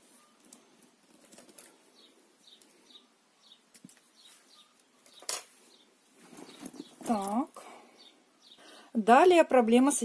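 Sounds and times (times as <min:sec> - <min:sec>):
bag rustling: 0:06.0 - 0:07.6.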